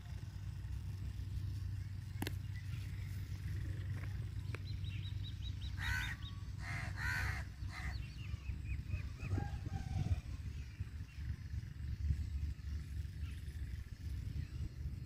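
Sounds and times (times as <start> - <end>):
small bird chirping: 0.0 - 15.0
steady low rumble: 0.0 - 15.0
crow cawing: 5.8 - 8.0.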